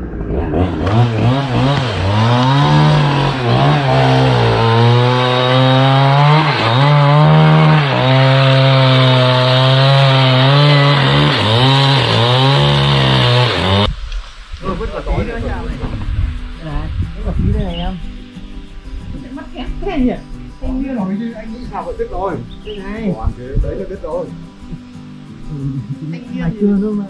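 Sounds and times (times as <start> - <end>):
power saw cutting log: 0.0 - 13.9.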